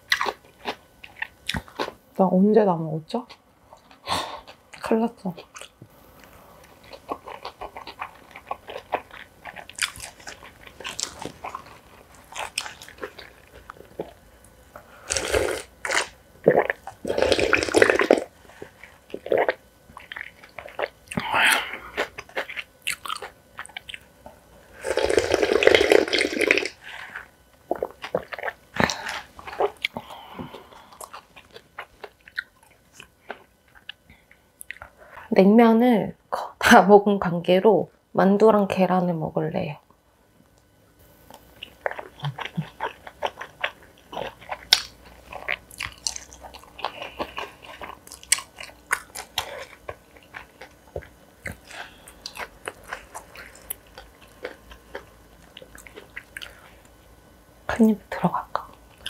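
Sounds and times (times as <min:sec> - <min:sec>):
crunchy bites and chewing: 0:05.5 - 0:24.2, 0:41.3 - 0:57.0.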